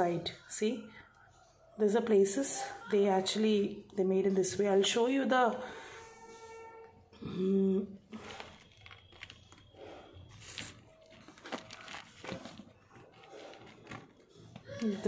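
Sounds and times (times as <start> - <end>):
cauliflower rustling and crackling: 8.0 - 15.0.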